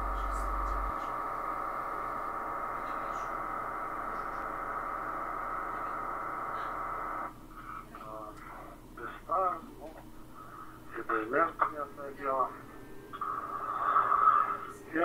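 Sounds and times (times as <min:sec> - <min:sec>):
digital radio signal buzz: 0:00.0 - 0:07.3.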